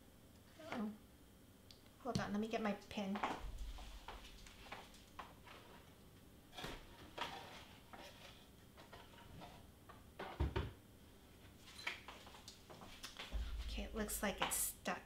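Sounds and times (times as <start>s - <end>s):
faint knocks and clatter: 3.2s - 10.8s, 12.1s - 14.6s.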